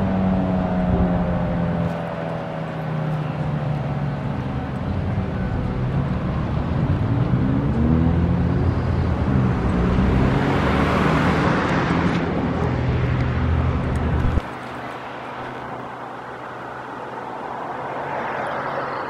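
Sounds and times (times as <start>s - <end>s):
vehicle engines running: 0.0s - 19.0s
vehicle passing by: 6.6s - 16.2s.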